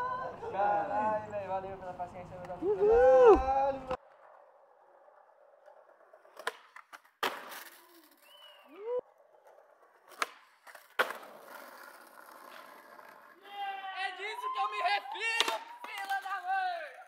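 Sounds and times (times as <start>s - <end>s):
skateboard wheels rolling: 0.0s - 17.0s
short rising whistle tone: 8.2s - 9.0s.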